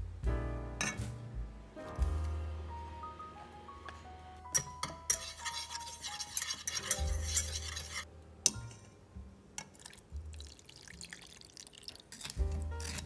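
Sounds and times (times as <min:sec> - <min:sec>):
spoon scraping a saucepan: 0:04.6 - 0:08.8, 0:12.2 - 0:13.0
juice pouring through sieve: 0:09.7 - 0:13.0.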